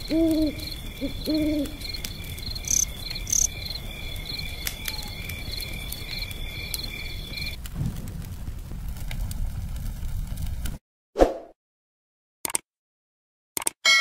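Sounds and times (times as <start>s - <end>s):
insects chirping: 0.0s - 7.6s.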